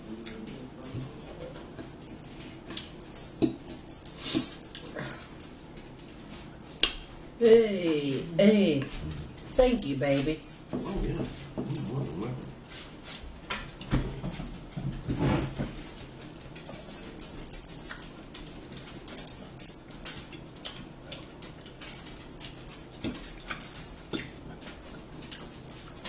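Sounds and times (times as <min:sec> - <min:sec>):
eating sounds: 0:01.7 - 0:07.3, 0:20.2 - 0:26.0.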